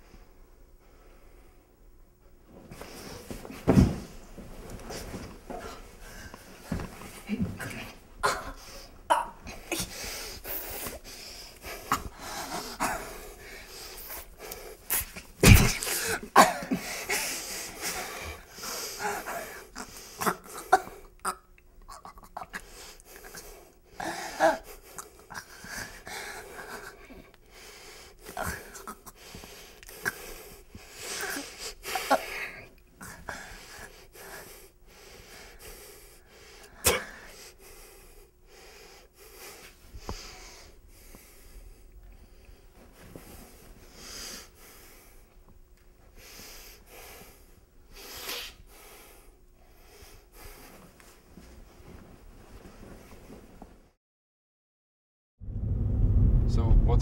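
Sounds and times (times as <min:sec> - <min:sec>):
heavy thump: 0:03.6 - 0:04.2
person gasping and coughing: 0:06.7 - 0:10.0, 0:11.7 - 0:13.3, 0:14.9 - 0:22.6, 0:36.7 - 0:37.3.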